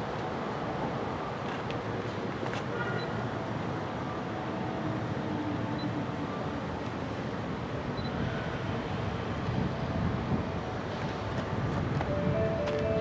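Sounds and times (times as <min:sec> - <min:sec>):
wind on microphone: 0:08.0 - 0:13.0
electric train rumbling: 0:08.5 - 0:13.0.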